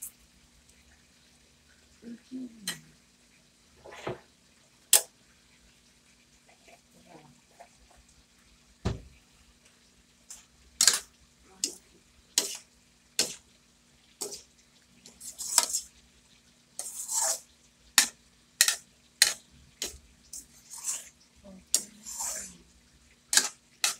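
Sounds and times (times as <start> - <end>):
metal spatula scraping a wok: 10.8 - 11.8, 12.4 - 13.4, 14.2 - 14.5, 15.1 - 15.9, 16.8 - 22.6, 23.3 - 23.9.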